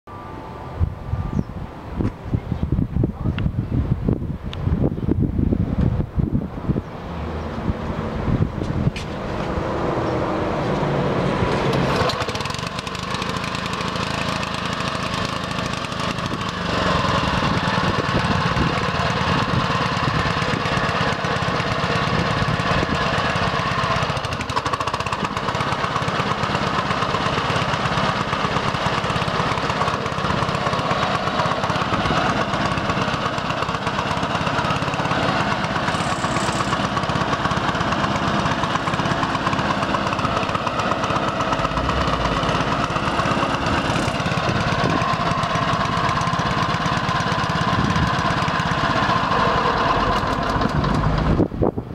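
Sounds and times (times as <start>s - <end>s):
lawn mower engine running: 5.8s - 51.9s.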